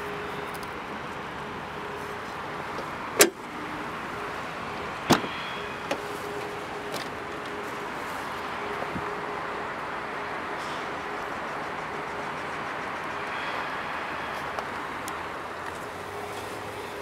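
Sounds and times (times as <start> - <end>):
car door latch clack: 3.2 - 3.4.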